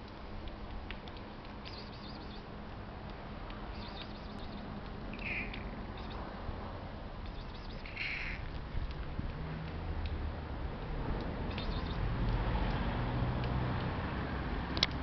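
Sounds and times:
outdoor background hiss: 0:00.0 - 0:15.0
faint bird chirps: 0:01.6 - 0:02.5, 0:03.7 - 0:06.3, 0:07.2 - 0:08.4, 0:11.5 - 0:12.1
cat meowing: 0:07.8 - 0:08.4.

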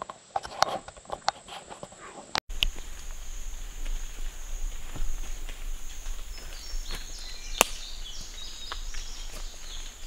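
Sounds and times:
high insect drone: 0:02.5 - 0:10.0
footsteps crunching dry leaves: 0:02.6 - 0:10.0
twig snapping: 0:06.9 - 0:07.9.

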